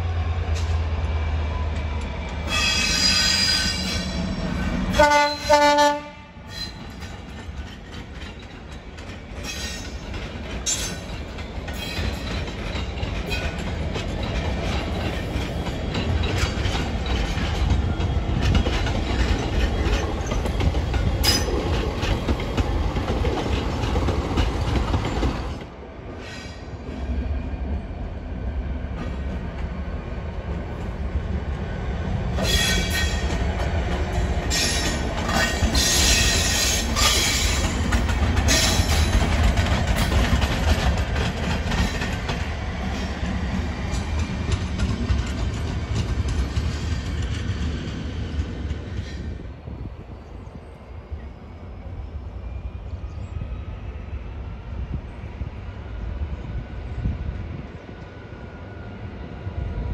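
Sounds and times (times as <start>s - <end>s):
diesel locomotive engines: 0.0s - 59.9s
train horn blast: 4.9s - 6.7s
wheels clicking over rail joints: 6.5s - 25.7s, 32.4s - 49.2s.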